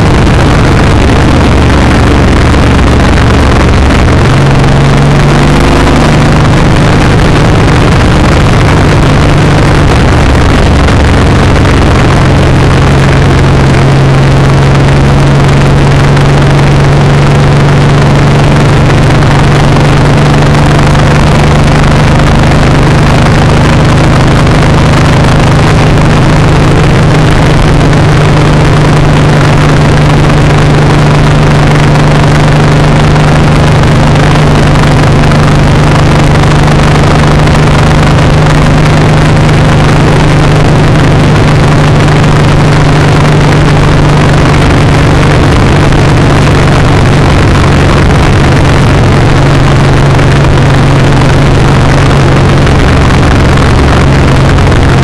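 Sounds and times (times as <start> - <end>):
motorcycle engine cruising: 0.0 - 55.0
wind rush on microphone: 0.0 - 55.0.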